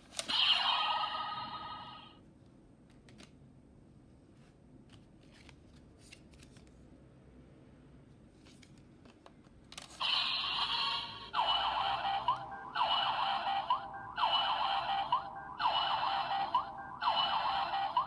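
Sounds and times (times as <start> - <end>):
toy electronic sound effect: 0.2 - 2.2, 10.0 - 18.0.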